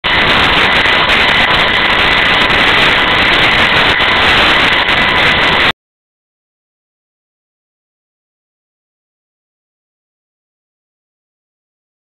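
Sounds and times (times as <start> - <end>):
electrical hiss and rumble: 0.0 - 5.7
high electrical whine: 0.0 - 5.8.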